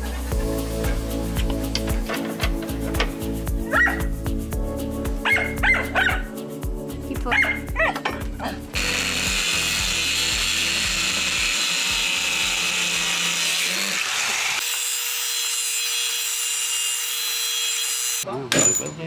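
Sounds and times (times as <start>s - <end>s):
whining motor tone: 8.7s - 13.2s
power tool cutting wood: 8.7s - 18.2s.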